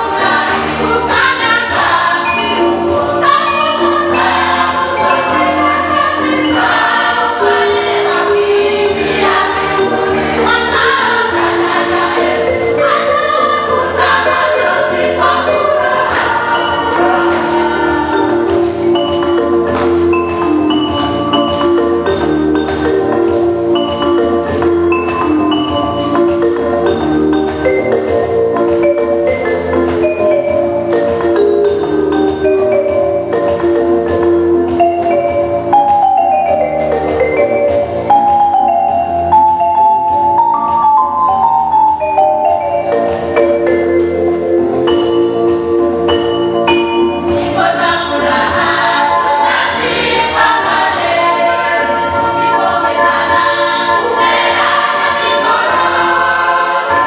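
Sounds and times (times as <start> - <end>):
gospel choir singing: 0.0 - 22.2, 47.2 - 57.0
instrumental backing with bass line: 0.0 - 57.0.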